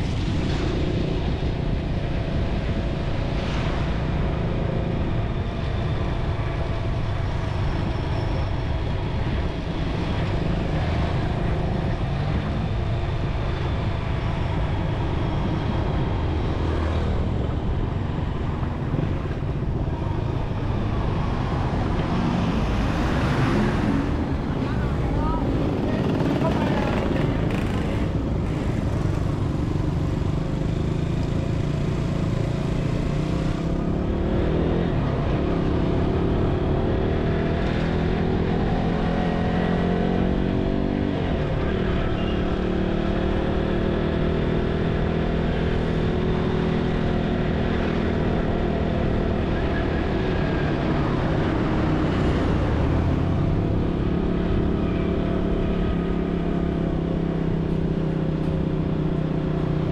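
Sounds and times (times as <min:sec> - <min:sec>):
motorcycle engine running: 0:24.8 - 0:33.3.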